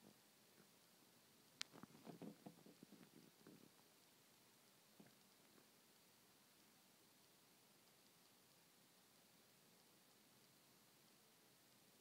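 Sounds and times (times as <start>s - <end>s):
snake swallowing clicks and crackles: 1.6s - 8.6s.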